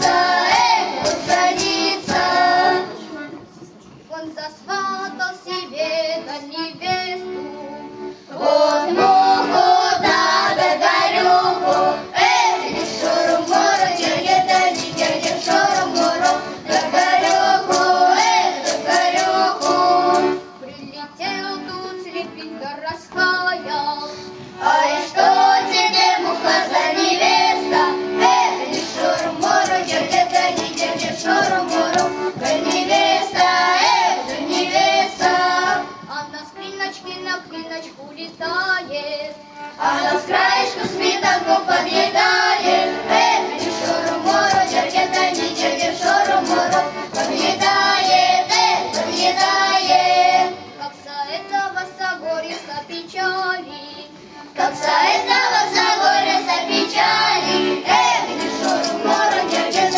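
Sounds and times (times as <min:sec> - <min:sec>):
accordion: 0:00.0 - 0:59.9
children singing folk song: 0:00.0 - 0:59.9
woman singing: 0:18.1 - 0:24.1, 0:36.1 - 0:41.8.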